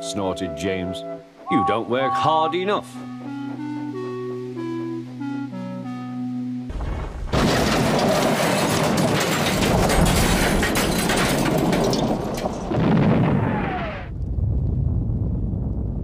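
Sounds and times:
explosion boom and rumble: 0:06.7 - 0:16.0.

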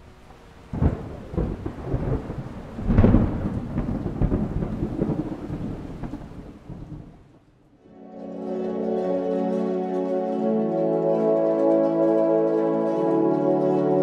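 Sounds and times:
rain: 0:00.0 - 0:14.0
rolling thunder rumble: 0:00.6 - 0:07.7.

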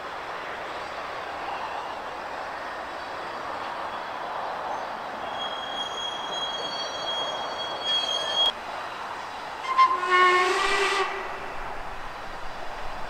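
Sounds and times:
high thin whistle: 0:05.2 - 0:08.5
steam locomotive whistle: 0:09.6 - 0:11.8.

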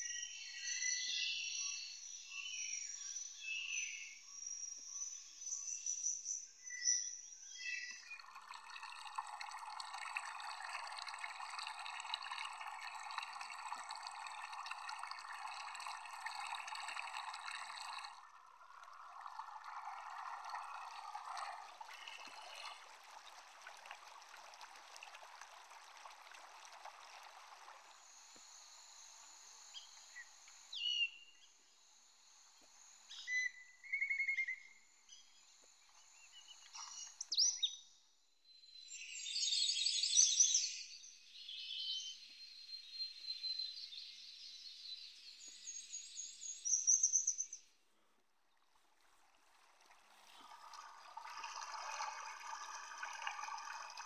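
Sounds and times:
running water: 0:08.0 - 0:30.9, 0:35.6 - 0:37.3, 0:48.4 - 0:54.0.

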